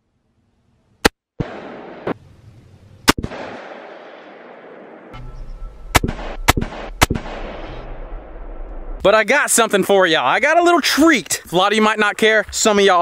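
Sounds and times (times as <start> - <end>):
rifle shots with echo: 1.4 - 2.2, 3.1 - 5.2, 5.9 - 9.0.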